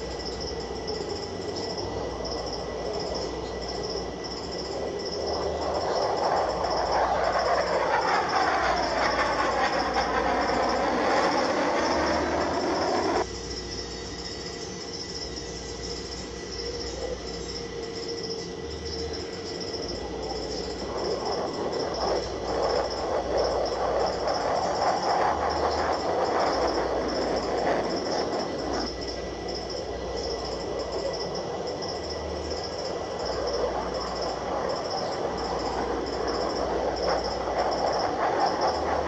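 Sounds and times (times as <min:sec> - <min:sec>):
fighter jet roaring past: 0:02.5 - 0:13.3, 0:19.8 - 0:29.7.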